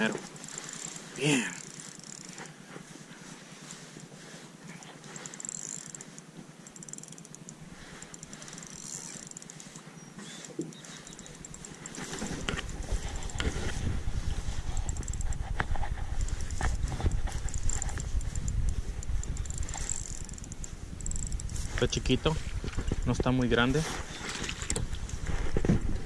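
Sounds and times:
fishing reel cranking: 0.0 - 2.6, 5.0 - 13.8, 14.4 - 23.4.

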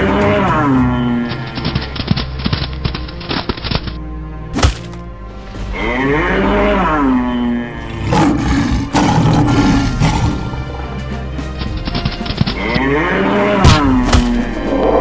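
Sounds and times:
background music: 0.0 - 15.0
lion roaring: 5.9 - 10.8.

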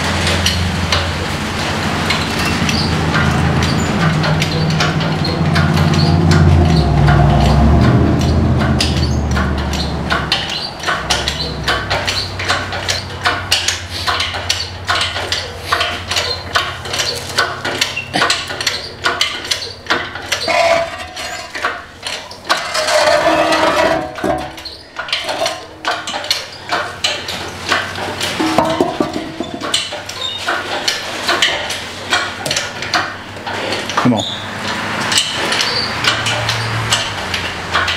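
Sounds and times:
low engine hum: 0.0 - 19.1
hand tools clinking on metal: 9.7 - 27.3.

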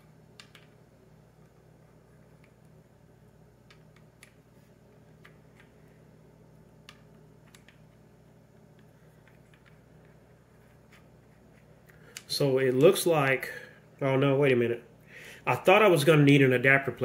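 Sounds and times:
steady low hum: 0.0 - 17.0
small clicks and taps: 0.4 - 0.8, 3.6 - 4.4, 5.2 - 5.8, 6.8 - 8.0, 8.6 - 10.2.

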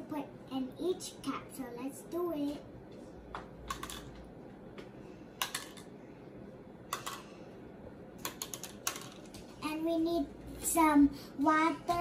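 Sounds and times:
tablets clicking into plastic cups: 3.7 - 4.2, 5.4 - 5.9, 6.9 - 7.3, 8.2 - 9.5.

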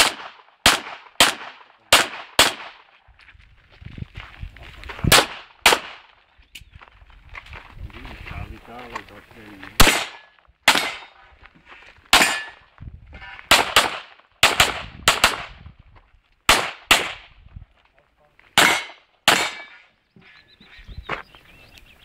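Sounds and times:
pistol shots: 0.0 - 2.9, 5.1 - 6.2, 9.8 - 11.2, 12.1 - 12.6, 13.5 - 15.6, 16.5 - 17.3, 18.6 - 19.8.

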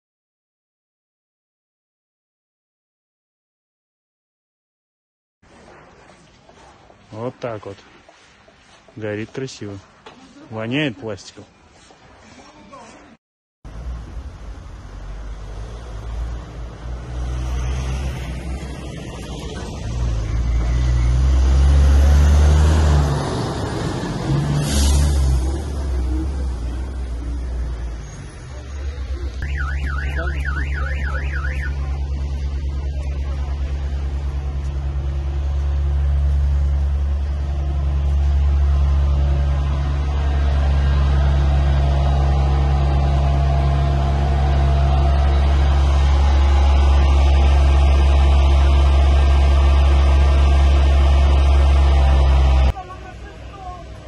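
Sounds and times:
diesel engine low drone: 13.7 - 54.0
siren rapid warble: 29.4 - 31.9.

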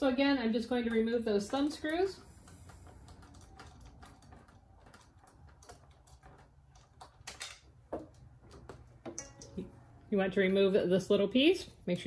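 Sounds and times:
thumb screws clicking and tapping: 0.8 - 9.6.

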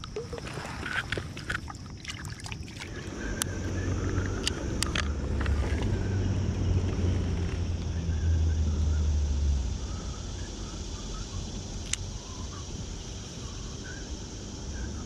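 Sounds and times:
fishing reel clicks and taps: 11.8 - 12.0.

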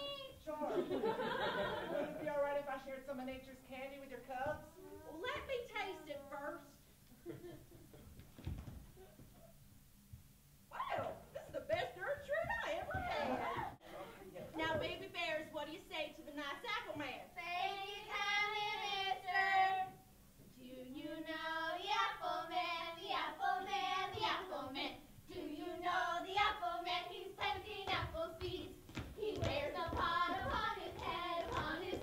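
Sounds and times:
voices singing with vibrato: 17.4 - 20.0, 20.6 - 32.0.

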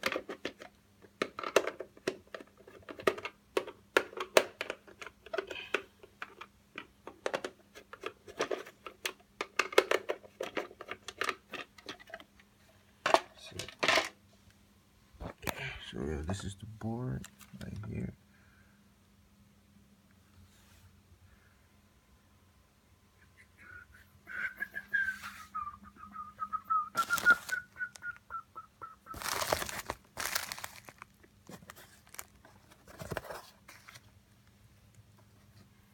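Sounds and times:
plastic mailer crinkling: 26.9 - 28.1, 29.1 - 34.1
cardboard box being moved: 29.2 - 31.0.

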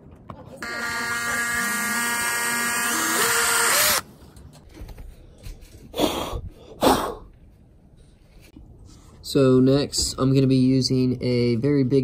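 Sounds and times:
electric drill whining: 0.6 - 4.1.

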